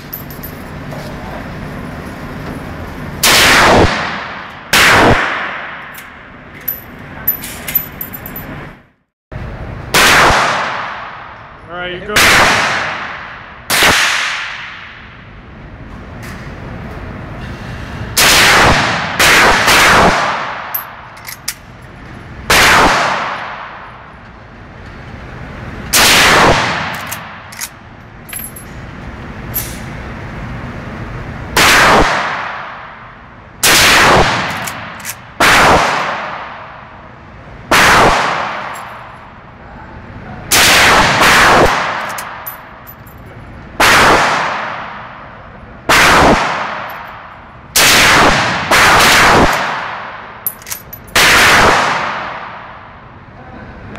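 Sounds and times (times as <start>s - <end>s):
echoing rifle shots: 3.2s - 5.8s, 33.6s - 36.7s, 37.7s - 38.8s, 40.5s - 42.5s, 43.8s - 45.0s, 47.8s - 50.3s, 51.1s - 52.7s.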